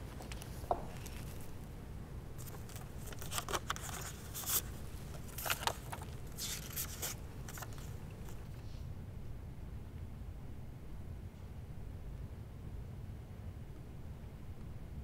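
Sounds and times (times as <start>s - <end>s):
paper rustling and crackling: 0.0s - 1.7s, 2.4s - 8.6s
low room hum: 0.0s - 15.0s.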